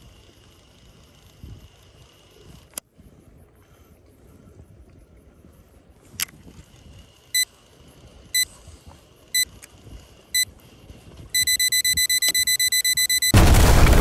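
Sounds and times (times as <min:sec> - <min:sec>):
electronic alarm beeping: 0:11.3 - 0:13.4.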